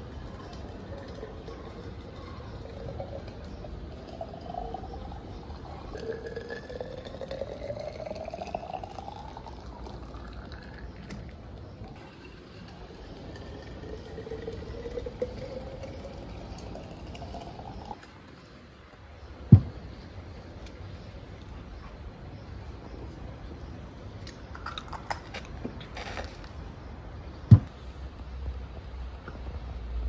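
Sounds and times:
liquid gurgling into bottles: 0.0 - 18.6
sharp thump: 19.5 - 19.8, 27.5 - 27.7.

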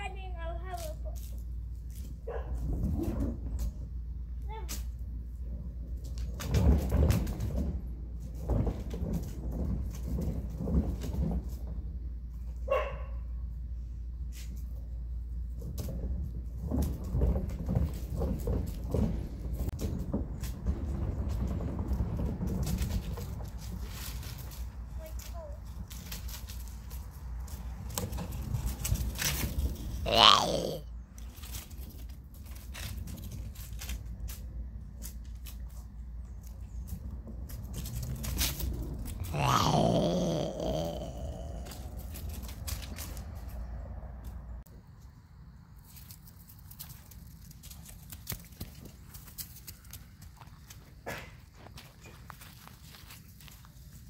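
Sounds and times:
dog barking: 2.2 - 2.6, 12.7 - 13.2
wheels clattering on wooden boards: 5.3 - 12.7, 15.4 - 24.8.

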